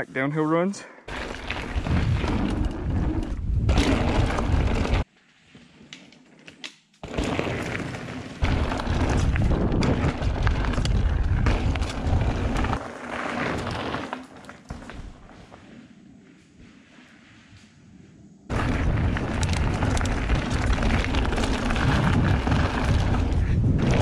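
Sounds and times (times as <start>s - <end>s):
bike clicks and rattles: 1.1s - 5.1s, 5.9s - 15.2s, 18.5s - 24.0s
bike tyres rumbling on dirt: 1.1s - 5.1s, 7.0s - 24.0s
wind buffeting camera: 1.5s - 5.0s, 8.4s - 12.8s, 18.5s - 24.0s.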